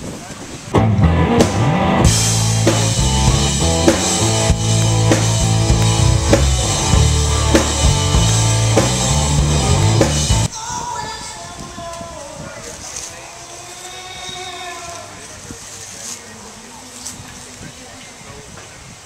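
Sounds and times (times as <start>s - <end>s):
faint background noise: 0.0s - 19.0s
electric guitars: 0.7s - 10.5s
drum kit beat: 0.8s - 10.5s.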